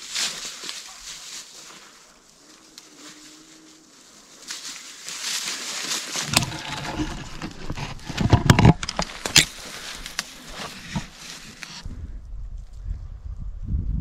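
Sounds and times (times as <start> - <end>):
dry branches rustling and crackling: 0.0 - 13.3
plastic bag rustling: 4.5 - 11.7
knocks and scrapes: 5.8 - 11.9.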